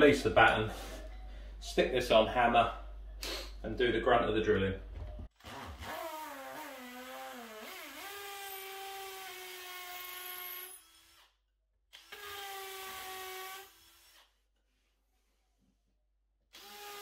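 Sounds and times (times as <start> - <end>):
hammer drill boring into wall: 5.4 - 11.3, 11.9 - 14.3, 16.5 - 17.0.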